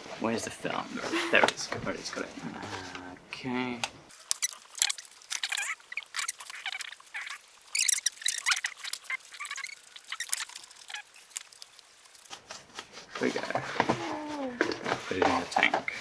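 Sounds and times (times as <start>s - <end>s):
sharp little clicks and scratches: 4.2s - 14.0s.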